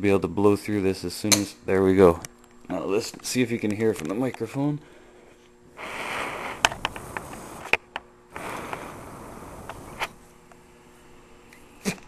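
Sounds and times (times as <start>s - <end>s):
air hissing through valve: 5.8s - 7.7s, 8.3s - 10.2s.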